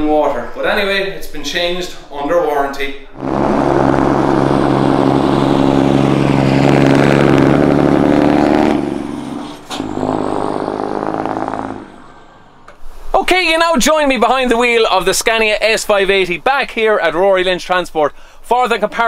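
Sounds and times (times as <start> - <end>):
truck diesel engine passing: 3.2 - 12.8.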